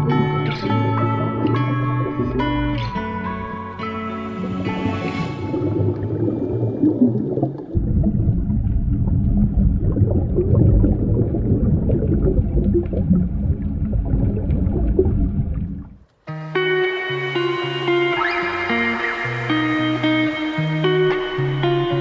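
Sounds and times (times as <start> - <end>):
underwater bubbles rumbling: 0.0 - 16.0.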